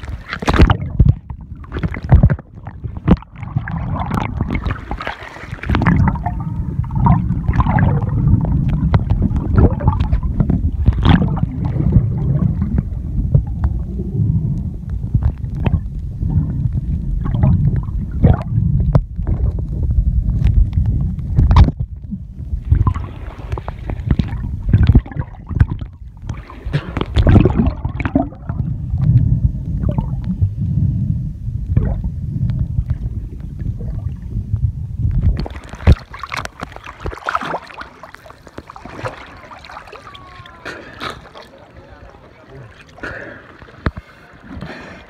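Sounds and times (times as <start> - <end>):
water splashing: 0.0 - 14.2, 22.6 - 30.2, 35.1 - 45.0
muffled underwater rumble: 0.0 - 45.0
underwater knocks: 0.4 - 13.8, 20.4 - 30.4.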